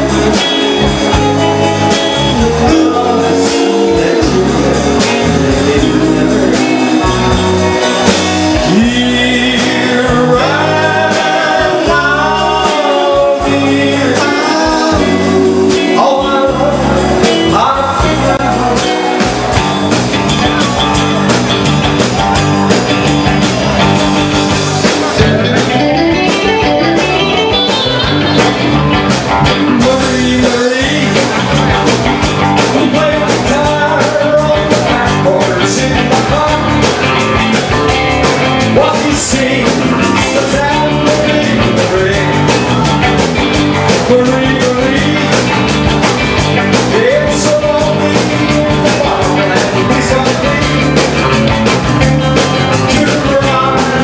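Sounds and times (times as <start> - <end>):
drum kit: 0.0 - 54.0
electric guitars: 0.0 - 54.0
man singing into a microphone: 2.1 - 19.2, 29.6 - 31.6, 32.6 - 37.1, 38.6 - 43.1, 43.8 - 45.8, 46.7 - 51.4, 52.7 - 54.0.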